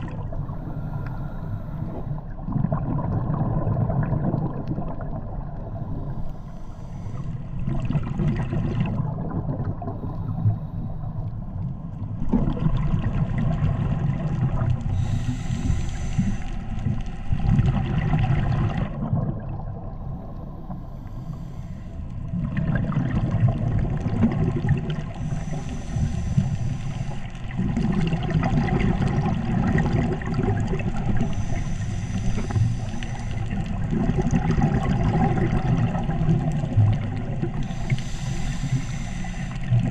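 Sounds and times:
exhaled air bubbling: 0:00.0 - 0:39.9
regulator inhale hiss: 0:00.3 - 0:02.2, 0:05.8 - 0:07.6, 0:10.0 - 0:11.2, 0:14.8 - 0:16.9, 0:20.4 - 0:22.3, 0:25.1 - 0:27.5, 0:31.0 - 0:33.9, 0:37.5 - 0:39.9.

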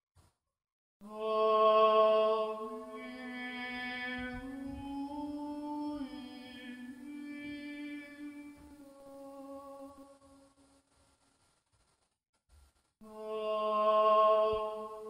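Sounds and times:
person chanting long held notes: 0:01.0 - 0:10.3, 0:13.0 - 0:15.0.

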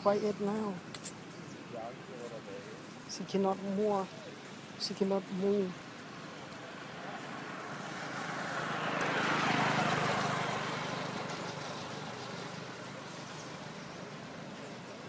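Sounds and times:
vehicle driving past: 0:05.8 - 0:15.0.

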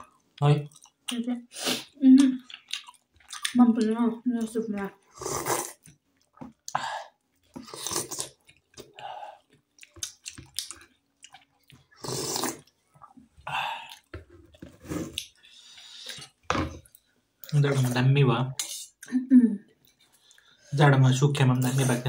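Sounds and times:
wet chewing sounds: 0:00.0 - 0:01.2, 0:01.8 - 0:17.6.

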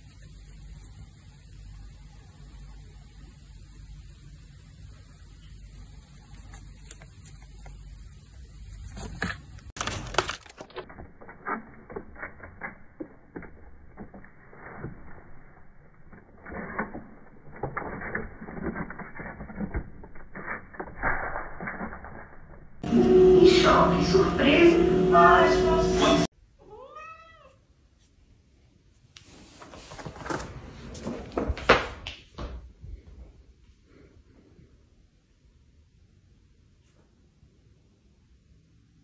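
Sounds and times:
faint low hum: 0:00.0 - 0:09.7.

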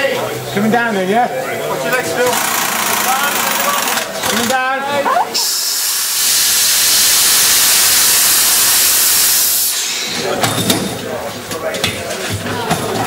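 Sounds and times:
compressed air hissing: 0:05.4 - 0:10.4.

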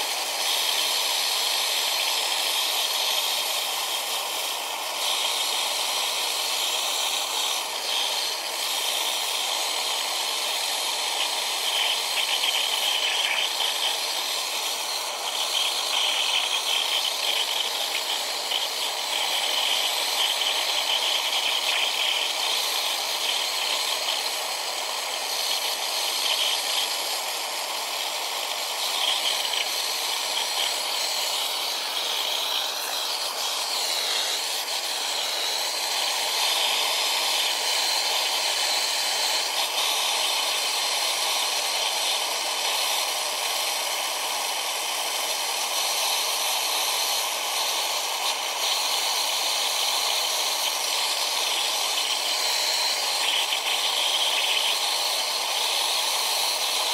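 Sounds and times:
gas torch flame hissing: 0:00.0 - 0:56.9.

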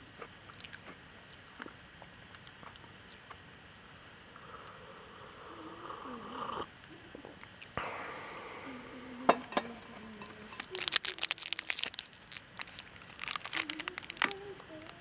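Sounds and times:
plastic wrapper crackling: 0:10.2 - 0:15.0.

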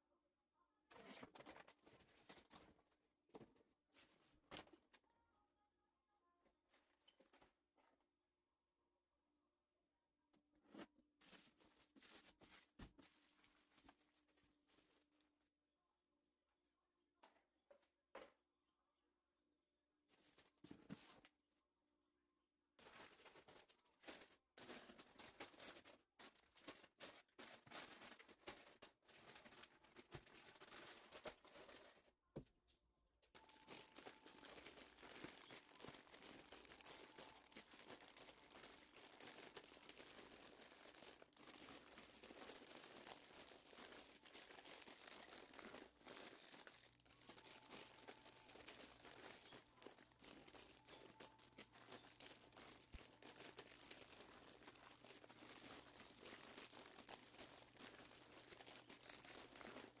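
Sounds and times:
plastic snack bags crinkling: 0:22.8 - 0:32.0, 0:33.4 - 1:00.0.

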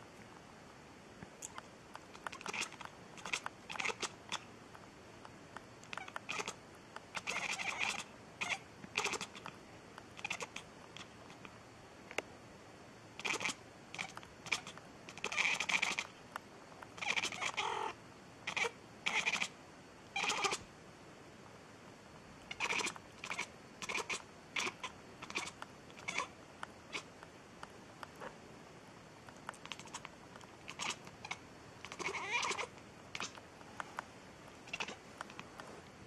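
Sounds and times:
cat chirping calls: 0:02.2 - 0:04.4, 0:05.9 - 0:06.6, 0:07.2 - 0:09.5, 0:10.2 - 0:11.1, 0:13.2 - 0:16.1, 0:17.0 - 0:19.6, 0:20.2 - 0:20.6, 0:22.5 - 0:27.1, 0:29.6 - 0:33.4, 0:34.6 - 0:35.4.

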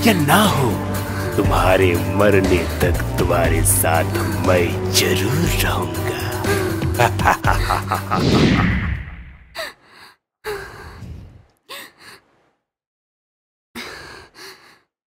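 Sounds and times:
woman gasping and sighing: 0:09.6 - 0:12.4, 0:13.8 - 0:14.9.

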